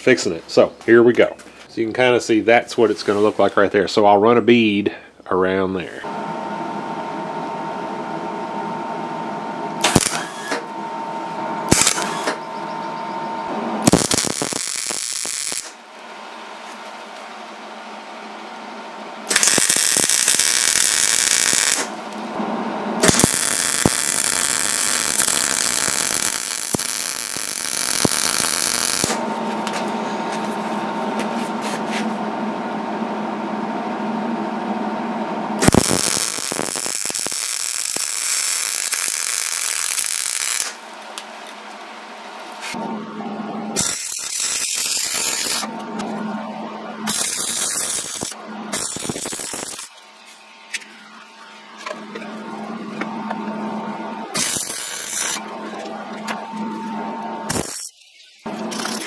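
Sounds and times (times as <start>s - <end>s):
steady hum: 0.0s - 57.8s
welder arc crackling: 9.8s - 10.7s, 11.7s - 12.4s, 13.8s - 15.9s, 19.3s - 22.4s, 23.0s - 29.9s, 35.6s - 41.8s, 43.8s - 46.1s, 47.1s - 50.0s, 54.2s - 55.5s, 57.5s - 59.0s.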